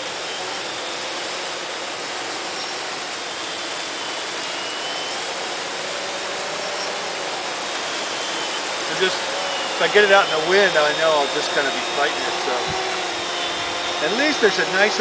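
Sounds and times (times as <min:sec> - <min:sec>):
quadcopter propellers whirring: 0:00.0 - 0:15.0.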